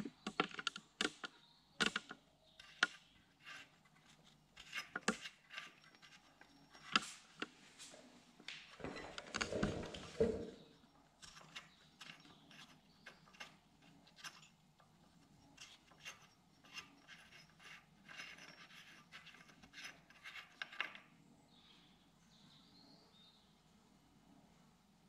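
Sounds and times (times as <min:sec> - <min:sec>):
metal nut clicking and scraping: 0:00.0 - 0:07.5, 0:08.5 - 0:21.1.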